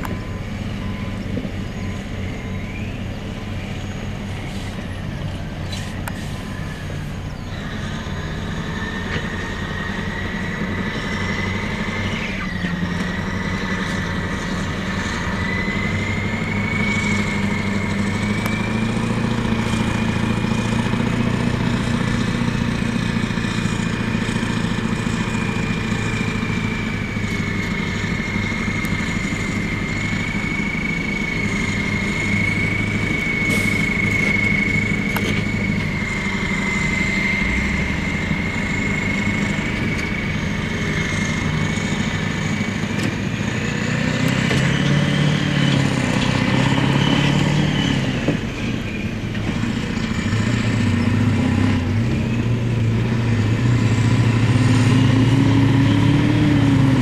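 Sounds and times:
diesel engine working hard: 0.0 - 57.0
steady high whine: 23.5 - 43.6.

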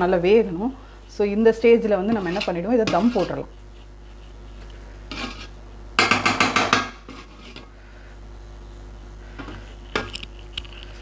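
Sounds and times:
spoon scraping metal pot: 2.0 - 5.6, 6.6 - 7.7.

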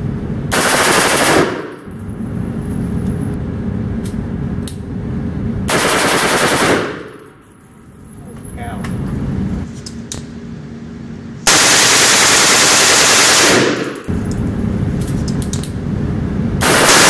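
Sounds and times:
rifle firing bursts: 0.5 - 1.9, 5.7 - 7.2, 11.5 - 14.0, 16.6 - 17.0.

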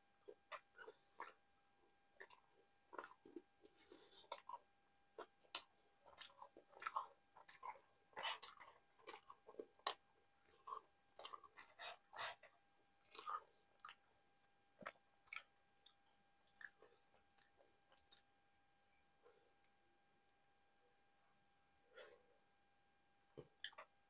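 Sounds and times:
chewing and wet mouth smacks: 0.2 - 1.4, 2.2 - 3.4, 4.2 - 4.6, 5.2 - 12.4, 13.0 - 14.0, 14.8 - 18.3, 23.4 - 23.9.

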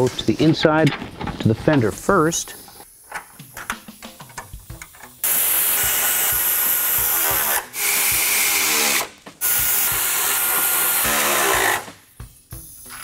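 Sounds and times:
air ratchet running fasteners: 3.1 - 11.9.

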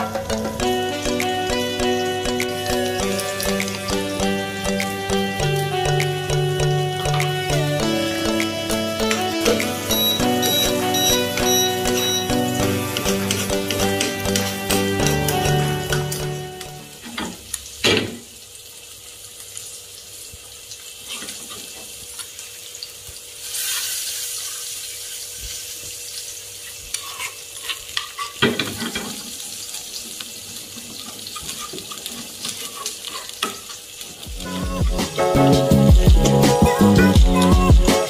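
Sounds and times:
sauce sizzling in a pan: 0.0 - 37.5
metal spoon scraping pan: 26.9 - 28.4.

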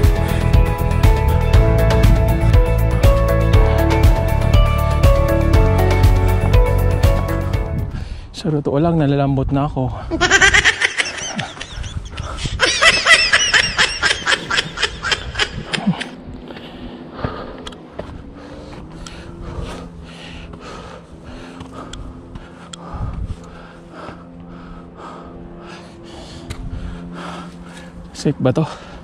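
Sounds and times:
man panting: 0.0 - 2.8, 11.2 - 12.6, 15.6 - 29.0
man laughing breathlessly: 10.0 - 17.7.

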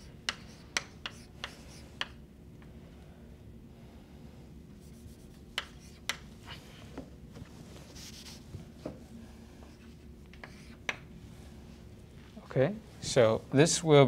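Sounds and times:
chalk scratching on blackboard: 0.0 - 2.1, 4.8 - 6.2, 7.9 - 8.4, 9.8 - 11.0
chalk tapping on blackboard: 0.0 - 2.2, 4.9 - 6.3, 10.3 - 11.0.

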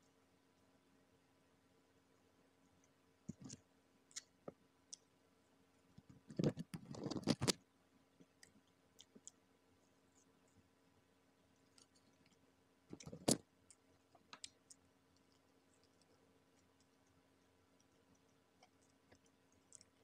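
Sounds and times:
chewing: 8.2 - 9.4, 11.6 - 20.0.

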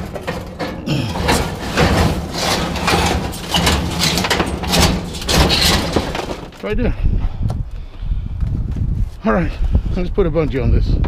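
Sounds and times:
scrap metal scraping and clanking: 0.0 - 6.6.

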